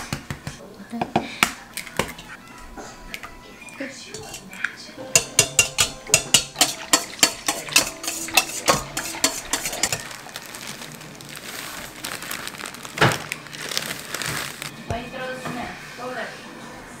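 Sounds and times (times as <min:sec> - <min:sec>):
whisk clinking against metal bowl: 0:04.1 - 0:10.0
dry mix rustling as poured: 0:08.0 - 0:14.7.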